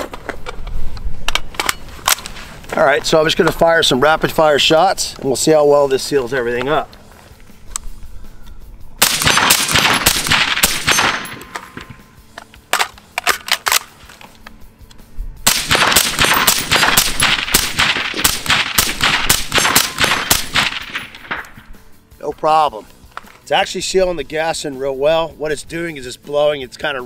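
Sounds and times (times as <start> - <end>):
suppressed rifle rapid fire: 9.0 - 12.0, 15.4 - 21.6.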